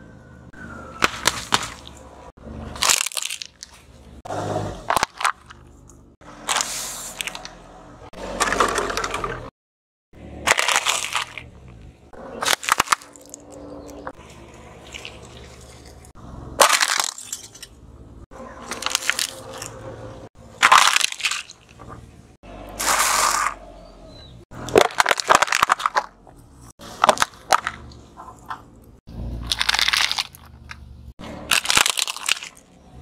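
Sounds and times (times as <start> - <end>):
tyre crushing plastic objects: 1.0 - 2.0, 2.7 - 3.9, 4.8 - 7.5, 8.2 - 9.5, 10.4 - 11.6, 12.3 - 15.5, 16.6 - 17.6, 18.6 - 19.7, 20.6 - 22.0, 24.6 - 28.7, 29.4 - 32.8.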